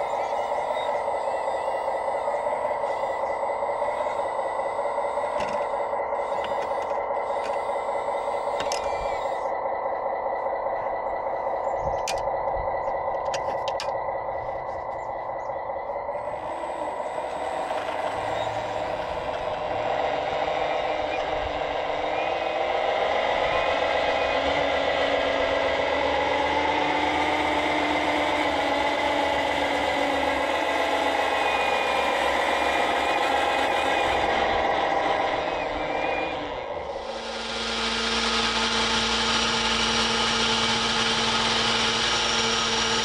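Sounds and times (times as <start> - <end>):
toy model motor whine with rattle: 0.0 - 9.5.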